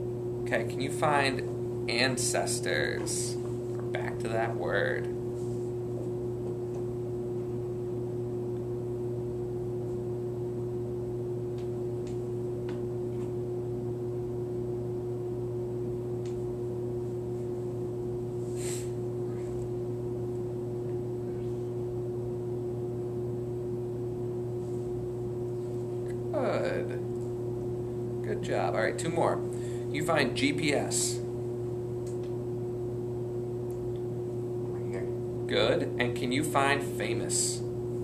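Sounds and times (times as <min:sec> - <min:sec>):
steady machine hum: 0:00.0 - 0:38.0
short hiss: 0:18.6 - 0:19.0.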